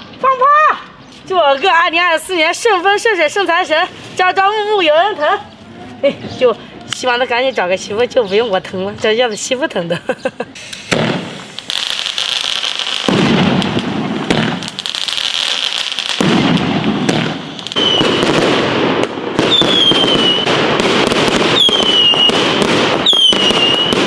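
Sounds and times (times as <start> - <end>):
firecrackers crackling: 10.5 - 24.0.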